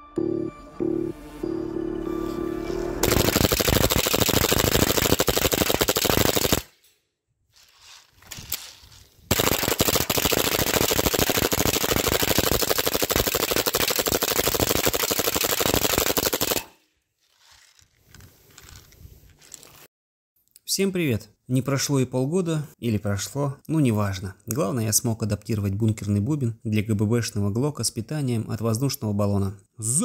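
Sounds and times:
airsoft pistol firing full-auto: 0:03.0 - 0:06.8, 0:09.3 - 0:16.8.

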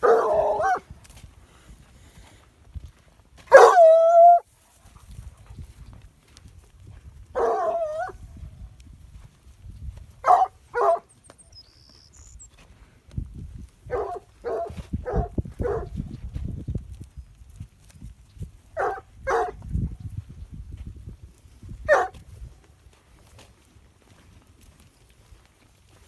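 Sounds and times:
dog barking: 0:00.0 - 0:00.8, 0:03.5 - 0:04.4, 0:07.4 - 0:08.2, 0:10.2 - 0:11.1, 0:13.9 - 0:16.0, 0:18.8 - 0:19.6, 0:21.9 - 0:22.2.

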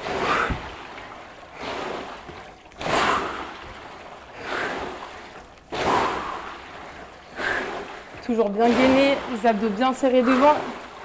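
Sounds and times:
water swishing in rowing tanks: 0:00.0 - 0:11.0
heavy breathing: 0:04.3 - 0:06.6, 0:07.3 - 0:08.2.

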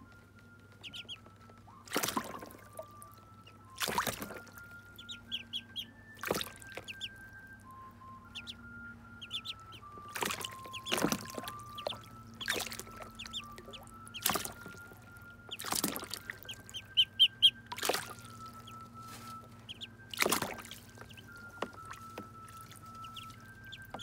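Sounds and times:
ducklings peeping: 0:00.8 - 0:24.0
water splashes: 0:01.8 - 0:07.2, 0:09.3 - 0:24.0.

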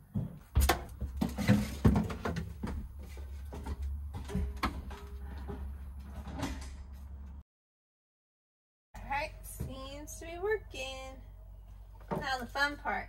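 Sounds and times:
clicks and rattles of fridge parts: 0:00.0 - 0:07.3.

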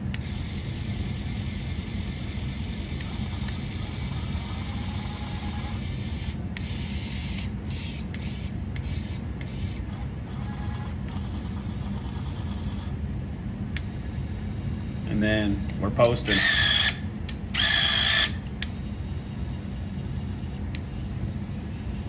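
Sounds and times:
electric motor low hum: 0:00.0 - 0:22.0
electric motor whine: 0:02.9 - 0:08.3.

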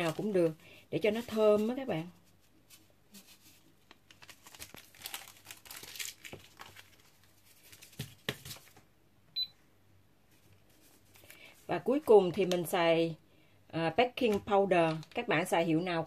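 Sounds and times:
paper sachet crinkling: 0:00.0 - 0:00.4, 0:01.2 - 0:08.7.

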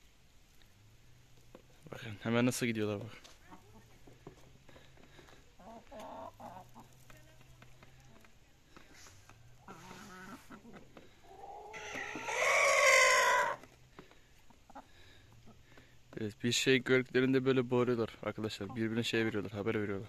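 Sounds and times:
chickens clucking softly: 0:05.6 - 0:07.2, 0:09.2 - 0:13.7, 0:14.4 - 0:15.8, 0:18.4 - 0:19.5
chicken loud drawn-out call: 0:11.3 - 0:13.7.

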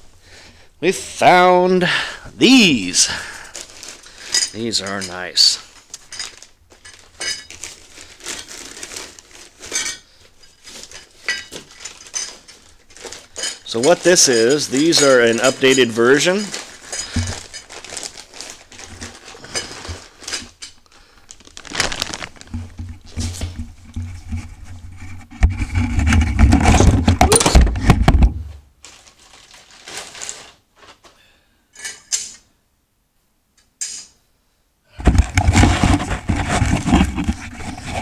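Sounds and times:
plastic packaging crinkling: 0:02.5 - 0:23.6, 0:28.8 - 0:31.1.

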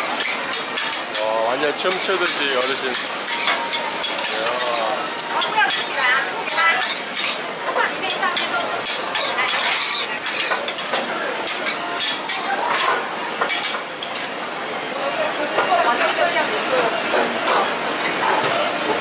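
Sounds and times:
metal spatula scraping griddle: 0:00.0 - 0:13.8
food sizzling: 0:00.0 - 0:19.0.

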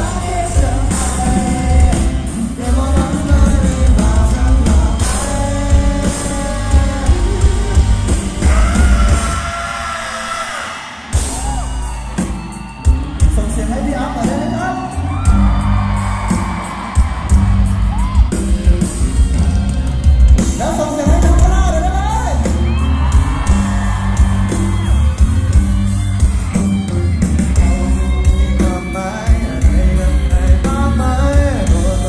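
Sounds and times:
bass guitar: 0:00.0 - 0:10.0, 0:11.2 - 0:32.0
man singing: 0:00.0 - 0:11.0, 0:27.4 - 0:32.0
drums with steady beat: 0:00.0 - 0:32.0
electric guitars: 0:00.0 - 0:32.0.

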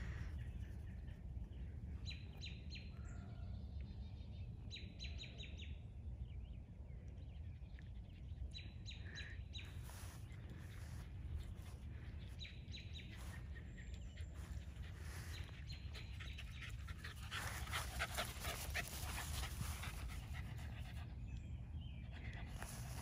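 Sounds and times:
small birds chirping: 0:00.0 - 0:23.0
dog panting: 0:14.0 - 0:21.2.

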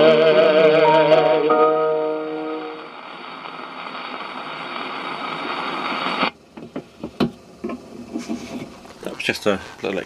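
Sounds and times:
baritone singing: 0:00.0 - 0:02.8
record surface hiss and crackle: 0:00.0 - 0:10.0.

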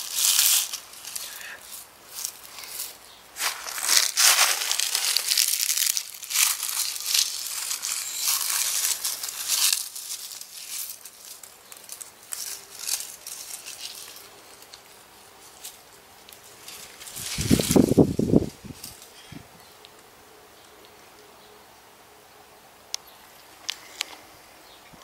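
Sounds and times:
dry leaves crackling and rustling: 0:00.0 - 0:19.3.

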